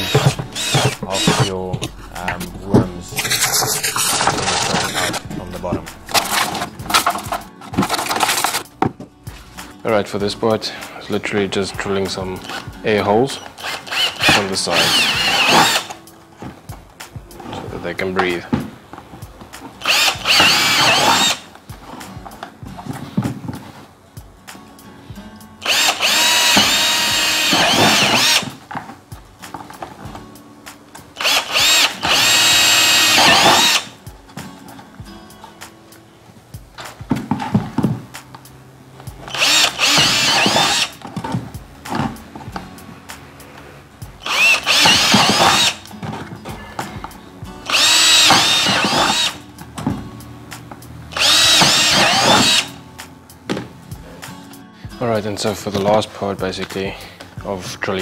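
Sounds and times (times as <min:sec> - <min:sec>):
electric drill boring into plastic: 0:00.0 - 0:01.6, 0:03.2 - 0:05.2, 0:13.6 - 0:16.0, 0:19.8 - 0:21.4, 0:25.6 - 0:28.6, 0:31.2 - 0:33.9, 0:39.3 - 0:40.9, 0:44.2 - 0:45.8, 0:47.7 - 0:49.4, 0:51.2 - 0:52.7.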